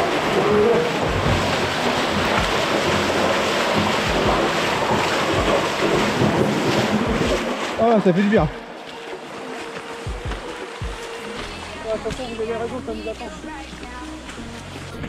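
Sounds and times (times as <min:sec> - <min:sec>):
small waterfall splashing on rock: 0:00.0 - 0:08.4
footsteps in water: 0:00.0 - 0:15.0.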